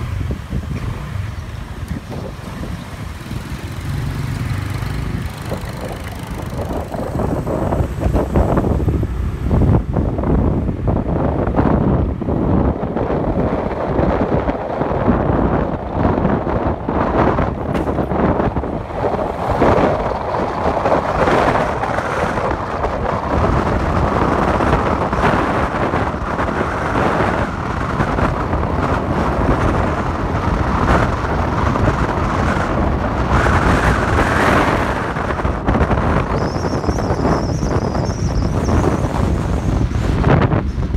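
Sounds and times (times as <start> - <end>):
vehicle rumble on road: 0.0 - 40.9
wind buffeting microphone: 0.0 - 40.9.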